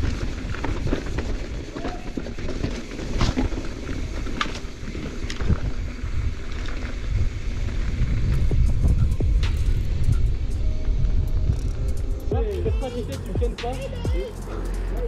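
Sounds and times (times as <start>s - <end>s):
tyres crunching over gravel: 0.0s - 9.4s
bike knocks and rattles: 0.0s - 10.0s
wind buffeting camera: 0.0s - 12.8s.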